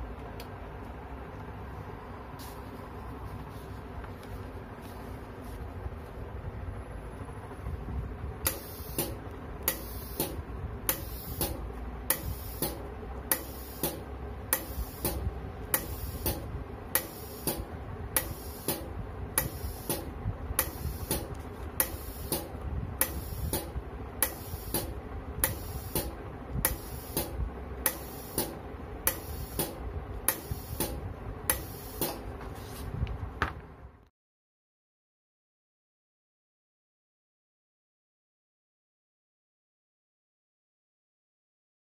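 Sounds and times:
glue dispenser air clicks: 8.4 - 32.2.

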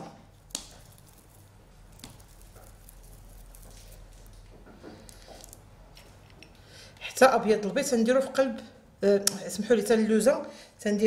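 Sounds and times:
fingers pressing sticky dough: 0.4 - 5.6.

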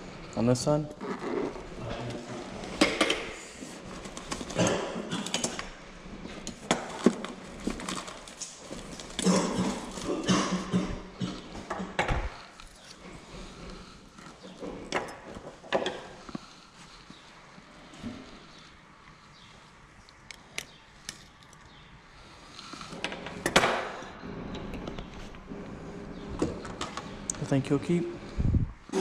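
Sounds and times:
hands rummaging in a bag: 6.6 - 10.3.

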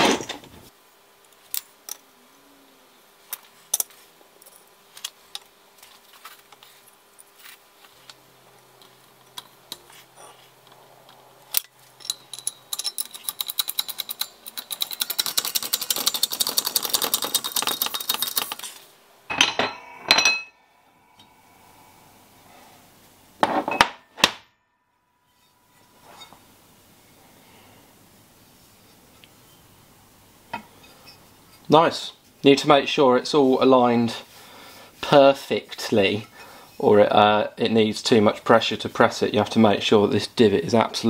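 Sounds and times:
metal parts clicking and knocking: 11.5 - 18.8.

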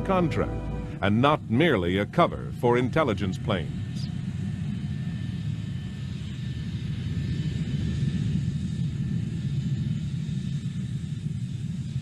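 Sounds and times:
faint high whine: 0.0 - 2.2
jet engines rumbling: 0.0 - 2.3.

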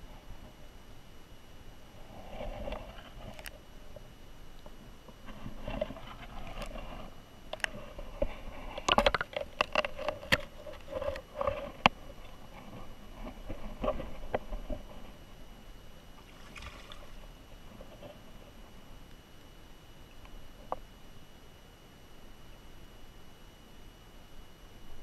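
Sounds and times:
underwater river wash: 0.0 - 24.6
underwater clicks and knocks: 7.5 - 12.4.

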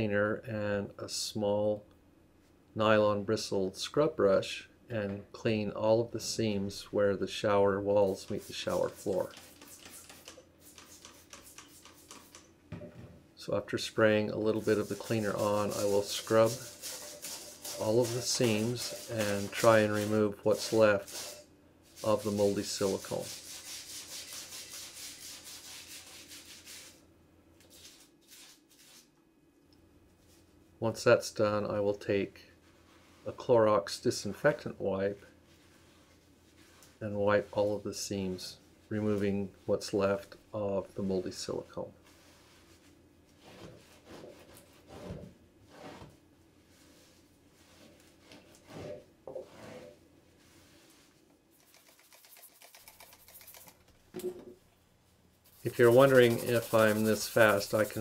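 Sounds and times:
scrub brush scrubbing: 8.0 - 12.4, 14.4 - 27.0, 27.7 - 29.1, 35.5 - 38.1, 42.0 - 45.1, 45.7 - 53.8, 55.4 - 58.0.

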